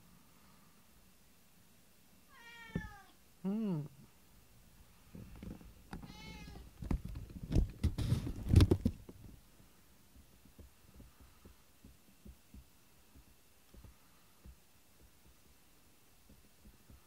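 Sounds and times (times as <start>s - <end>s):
cat meowing: 2.3s - 3.2s, 6.0s - 6.6s
dull thumps and knocks: 5.1s - 6.1s, 6.7s - 9.4s, 10.2s - 15.6s, 16.2s - 17.0s.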